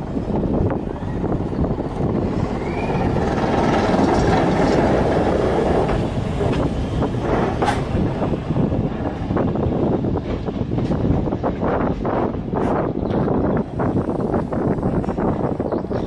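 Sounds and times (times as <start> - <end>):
train wheels rumbling on track: 0.0 - 16.0
wheel squeal: 2.4 - 8.1.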